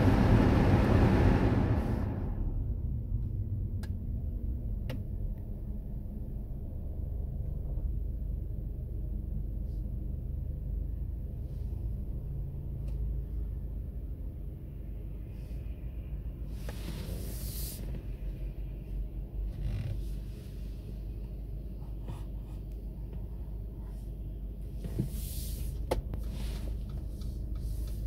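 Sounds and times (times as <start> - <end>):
loud vehicle noise: 0.0 - 2.9
low rumble of road traffic: 0.0 - 28.0.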